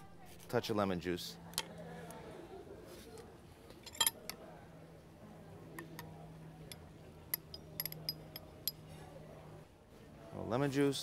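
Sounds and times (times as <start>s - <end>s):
faint steady hum: 0.0s - 11.0s
utensil clinking against metal bowl: 6.6s - 8.9s.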